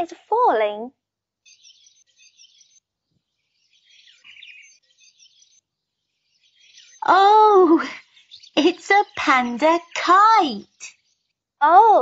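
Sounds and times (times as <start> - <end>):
cartoon birds chirping: 3.5 - 5.6, 6.2 - 12.0.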